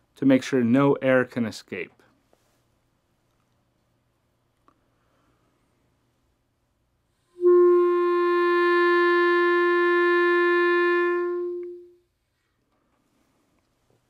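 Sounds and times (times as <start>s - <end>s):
clarinet long note: 7.4s - 12.0s.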